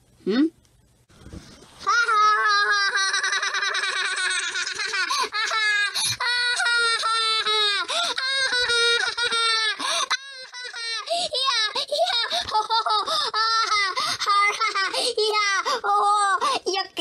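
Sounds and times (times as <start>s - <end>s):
person laughing high-pitched: 1.8s - 15.0s.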